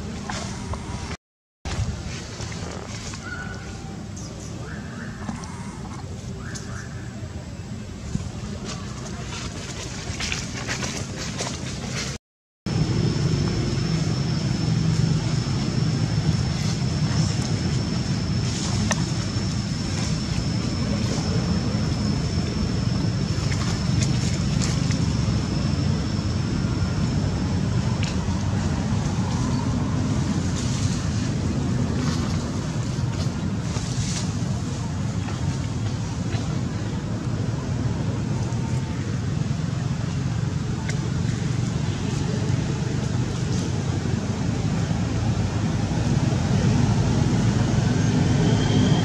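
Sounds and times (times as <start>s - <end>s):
low outdoor rumble: 0.0s - 49.0s
thin high whine: 12.7s - 31.3s.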